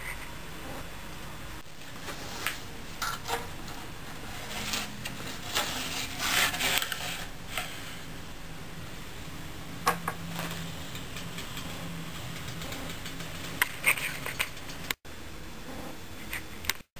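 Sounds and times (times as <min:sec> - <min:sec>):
bamboo strip scraping in steel groove: 0:04.2 - 0:08.1
sharp clicks: 0:10.9 - 0:15.0.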